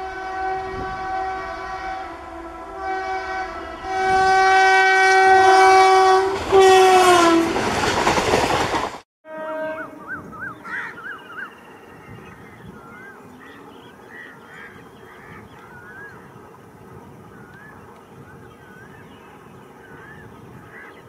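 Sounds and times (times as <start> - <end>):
birds whistling calls: 9.8 - 21.0.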